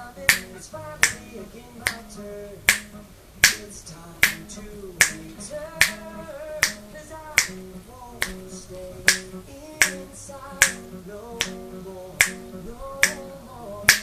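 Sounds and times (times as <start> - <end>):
finger snaps: 0.3 - 2.1, 2.7 - 3.6, 4.2 - 7.6, 8.2 - 10.8, 11.4 - 11.6, 12.2 - 14.0.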